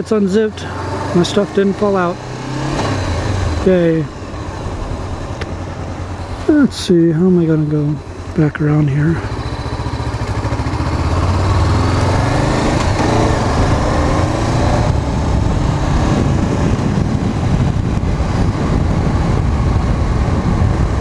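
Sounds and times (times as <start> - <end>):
motorcycle engine pulling away: 0.5 - 6.5, 8.0 - 21.0
wind noise: 9.2 - 21.0.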